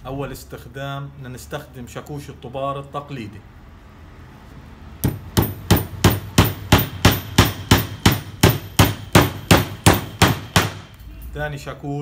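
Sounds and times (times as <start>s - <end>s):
hammer striking nail into wood: 5.0s - 10.9s.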